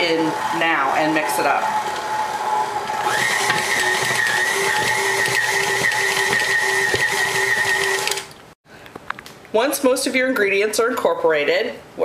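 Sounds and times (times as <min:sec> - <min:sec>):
stand mixer motor whine: 0:00.0 - 0:08.3.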